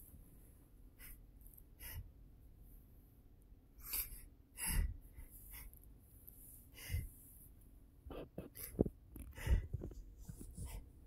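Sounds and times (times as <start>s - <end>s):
man sniffing and breathing: 6.4s - 7.5s, 8.1s - 11.0s.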